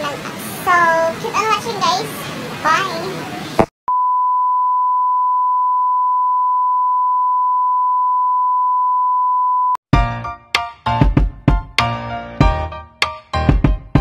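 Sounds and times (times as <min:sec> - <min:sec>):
steady high test tone beep: 0:03.9 - 0:09.8
music with drum hits: 0:10.0 - 0:14.0.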